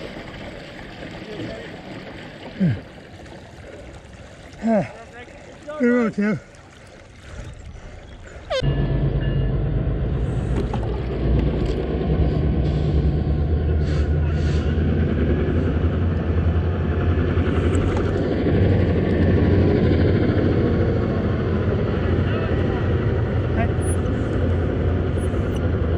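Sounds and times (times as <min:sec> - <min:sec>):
rushing water: 0:00.0 - 0:08.6
wind rumble on microphone: 0:08.6 - 0:23.5.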